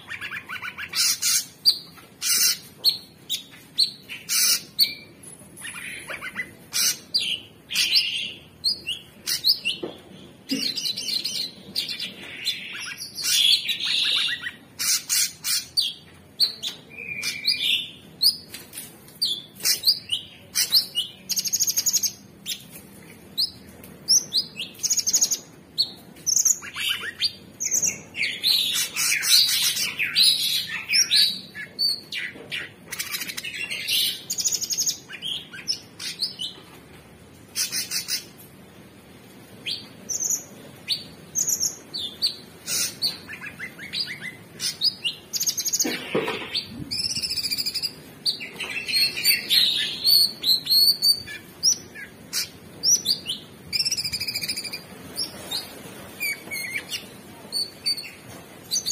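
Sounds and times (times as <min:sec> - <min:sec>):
bird singing chirps and trills: 0:46.6 - 0:58.9.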